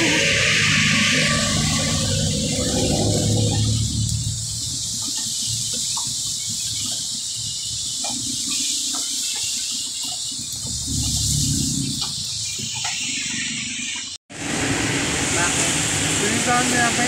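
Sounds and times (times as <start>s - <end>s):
heavy rain on car roof: 14.3s - 17.0s.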